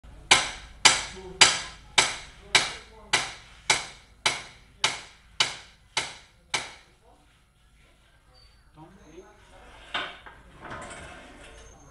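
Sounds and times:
hammer striking: 0:00.3 - 0:06.9.

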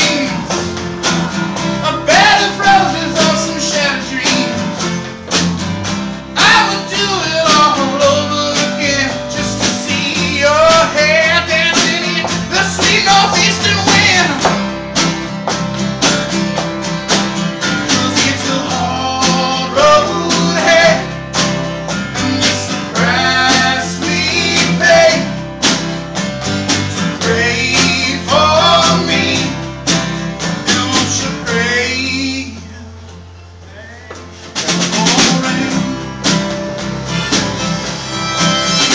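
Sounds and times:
person singing: 0:00.0 - 0:00.5, 0:01.8 - 0:04.6, 0:06.4 - 0:14.6, 0:17.8 - 0:21.2, 0:22.2 - 0:25.4, 0:27.2 - 0:29.6, 0:33.7 - 0:36.2
country rock band playing: 0:00.0 - 0:38.9
drums: 0:00.0 - 0:38.9
steel guitar: 0:00.0 - 0:38.9
strummed acoustic guitar: 0:00.0 - 0:38.9.

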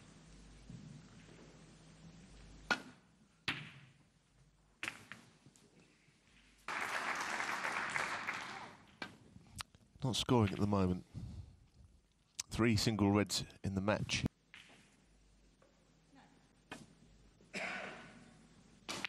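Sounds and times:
audience applause: 0:06.7 - 0:08.9.

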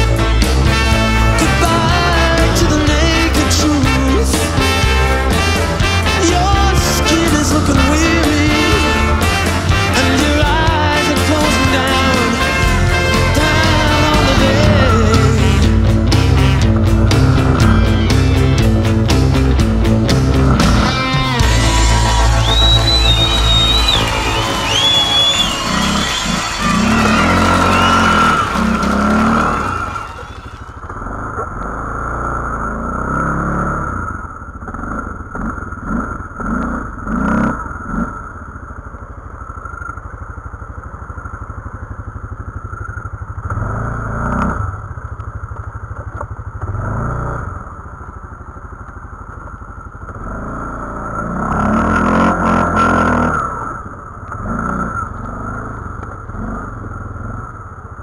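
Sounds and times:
music: 0:00.0 - 0:30.8
atv engine revving: 0:00.0 - 0:58.0.

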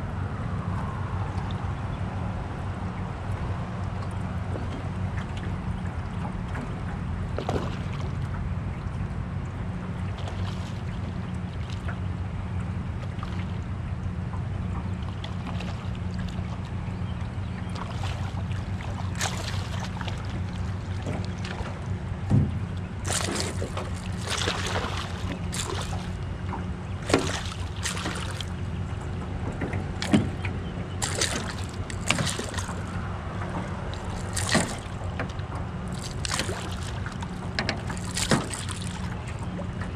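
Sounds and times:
low rumble of water and wind: 0:00.0 - 0:39.9
fish splashing in water: 0:07.4 - 0:08.4, 0:10.1 - 0:11.9, 0:15.0 - 0:16.7, 0:17.6 - 0:22.2, 0:22.8 - 0:39.9.

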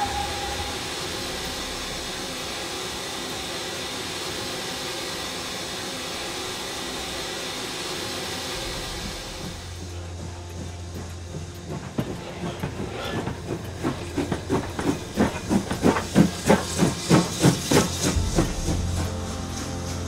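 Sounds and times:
steam locomotive whistle: 0:00.0 - 0:05.4
steam hissing: 0:00.0 - 0:20.0.

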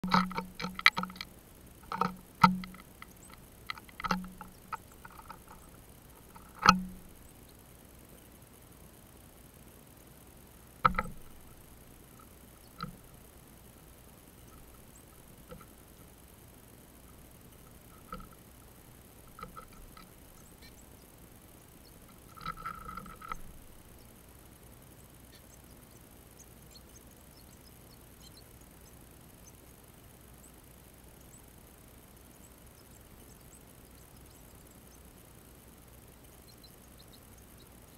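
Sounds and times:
birds pecking at feeder: 0:00.0 - 0:07.7, 0:10.8 - 0:37.9
rattling knocks on wire cage: 0:06.3 - 0:07.1, 0:10.8 - 0:11.5, 0:19.3 - 0:20.1.

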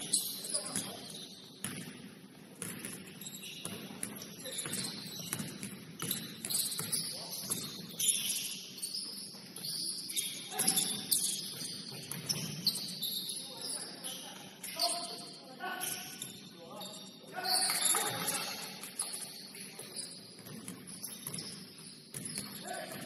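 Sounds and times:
sneakers squeaking on court: 0:00.0 - 0:02.0, 0:02.6 - 0:23.0
basketball bouncing: 0:01.6 - 0:02.0, 0:02.6 - 0:07.8.

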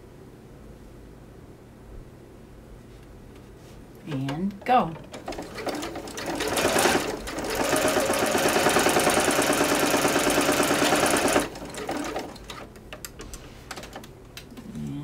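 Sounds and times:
electric sewing machine stitching: 0:05.0 - 0:12.7.

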